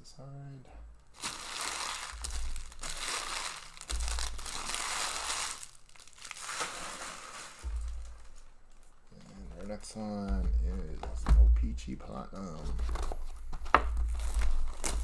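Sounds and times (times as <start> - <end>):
card packaging crumpling: 1.1 - 8.4, 14.0 - 15.0.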